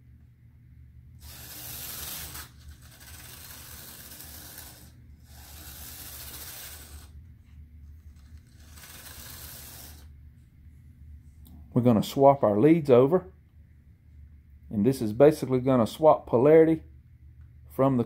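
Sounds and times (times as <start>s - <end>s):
model locomotive motor whirring: 1.2s - 7.2s, 8.0s - 10.1s.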